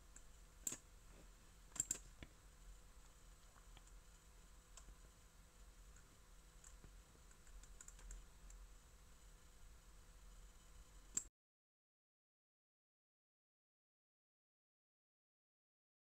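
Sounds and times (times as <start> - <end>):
faint steady hum: 0.0 - 11.3.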